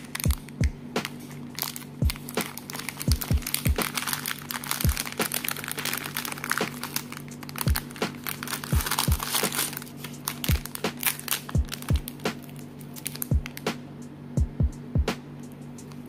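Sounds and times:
plastic bags crinkling: 0.0 - 13.7
background music with deep bass: 0.0 - 16.0.

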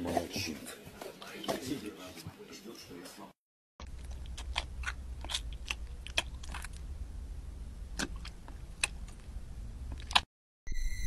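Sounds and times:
dog chewing wet clicks: 3.8 - 6.8
low steady hum: 3.8 - 10.2.

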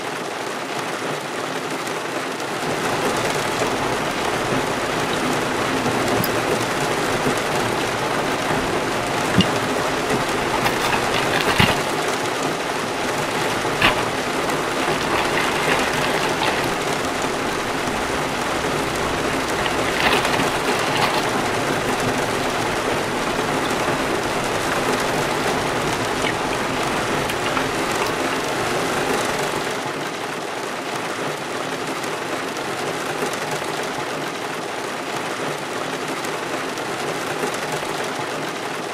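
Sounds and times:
heavy rain on car roof: 0.0 - 38.9
plastic bag crinkling: 2.9 - 29.6
utensils knocking: 4.4 - 12.1, 12.8 - 29.4.

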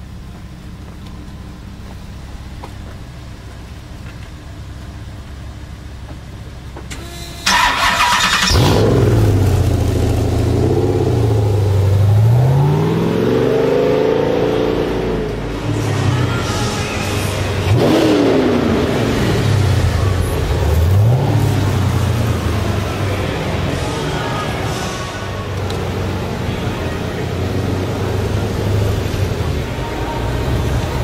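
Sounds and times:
low steady rumble: 0.0 - 7.5
engine idling and revving: 0.0 - 31.0
engine starter cranking: 6.9 - 9.0.

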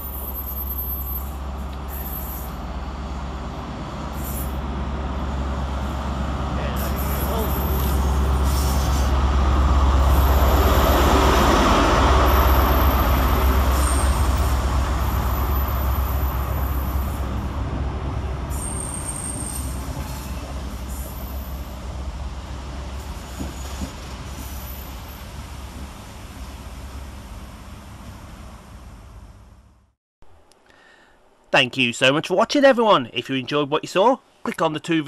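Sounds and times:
diesel engine drone: 0.0 - 23.3
train coaches rolling by: 0.0 - 29.9.

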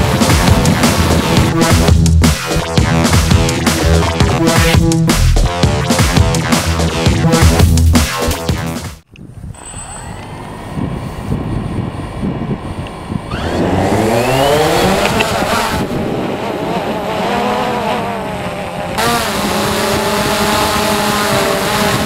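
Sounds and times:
drone motors buzzing: 0.0 - 7.8, 9.6 - 22.0
wind rumbling on microphone: 9.1 - 22.0.

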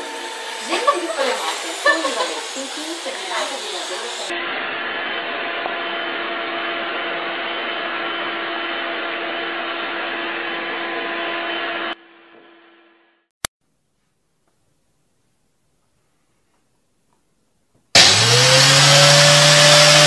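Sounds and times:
stick vacuum cleaner running: 0.0 - 12.5, 18.0 - 20.0.

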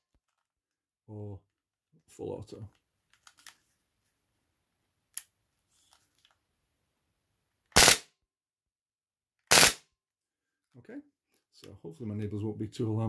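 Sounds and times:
airsoft pistol full-auto bursts: 7.7 - 8.1, 9.5 - 9.8.

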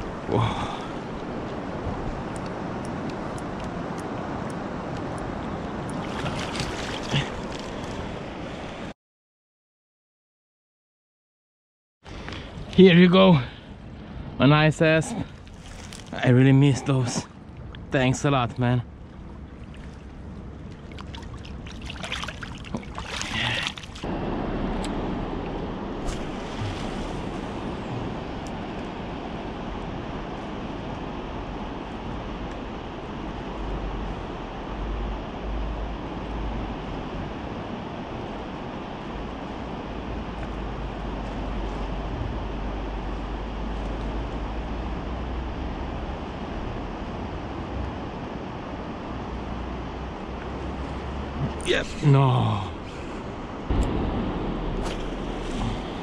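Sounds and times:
water splashing and trickling: 0.0 - 8.8, 15.0 - 24.1, 24.7 - 28.8, 54.6 - 56.0
river water rushing: 0.0 - 8.9, 18.9 - 56.0.

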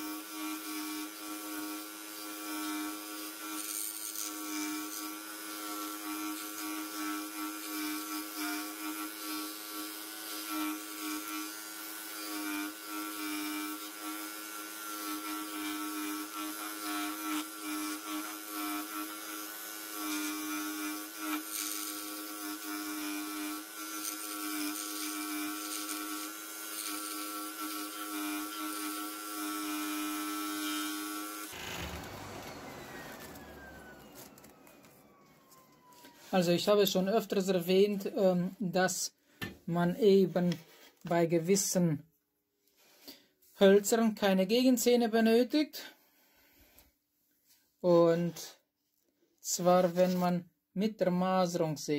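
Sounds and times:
scroll saw humming: 10.3 - 36.5.

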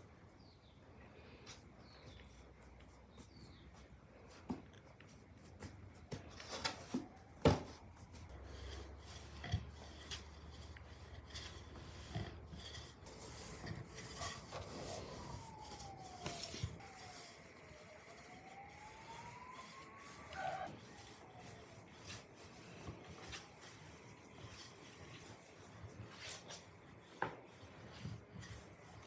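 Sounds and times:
rolling pin rubbing dough: 6.9 - 29.0.

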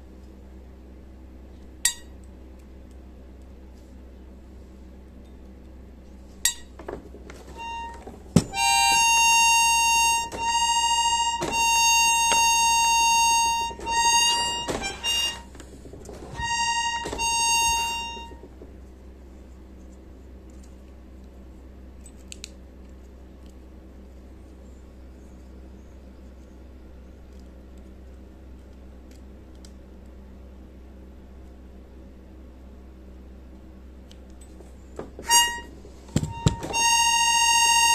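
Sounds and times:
accordion reed high note: 7.5 - 18.6, 35.2 - 37.9.

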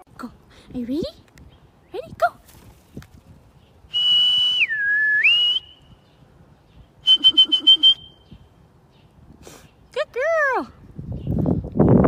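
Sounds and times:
person whistling: 3.9 - 5.9, 7.0 - 8.2.

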